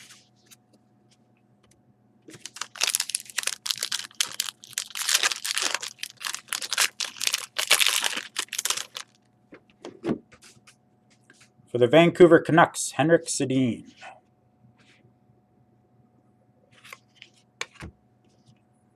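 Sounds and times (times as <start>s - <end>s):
foil wrapper tearing and crinkling: 2.3s - 9.2s.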